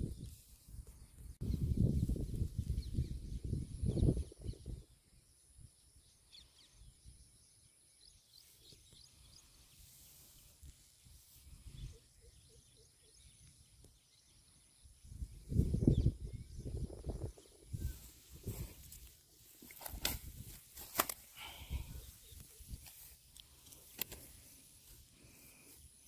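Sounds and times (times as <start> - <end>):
faint bird chirps: 0.0 - 20.0.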